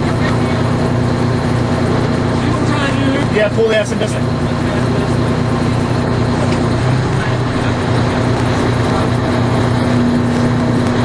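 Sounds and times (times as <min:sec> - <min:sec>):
truck engine running: 0:00.0 - 0:11.0.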